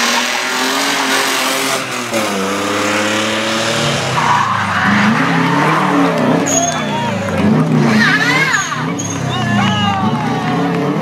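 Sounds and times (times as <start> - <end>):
rally car engine revving: 0.0 - 11.0
tyres squealing: 4.1 - 7.2, 7.9 - 9.8.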